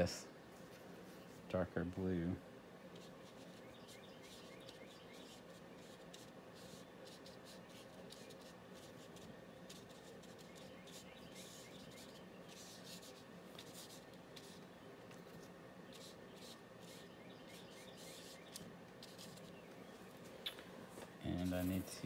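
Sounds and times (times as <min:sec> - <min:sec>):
paintbrush swishing on paper: 0:02.9 - 0:19.6.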